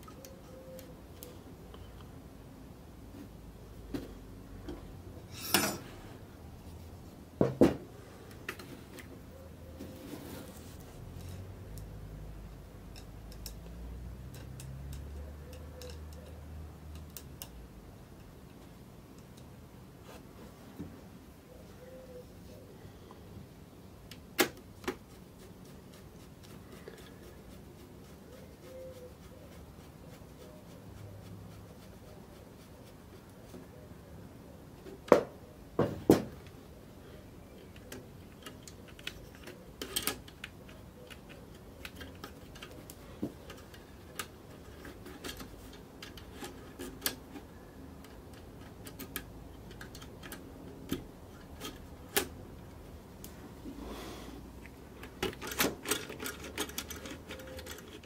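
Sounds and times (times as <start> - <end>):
screwdriver clicking on small parts: 12.8 - 17.6, 37.7 - 52.3, 55.0 - 58.0.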